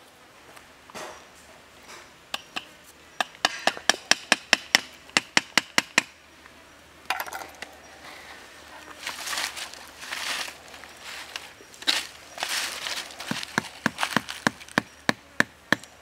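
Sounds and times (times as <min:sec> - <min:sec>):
dry leaves rustling: 0:07.7 - 0:15.2
knife chopping wooden stick: 0:13.3 - 0:15.9.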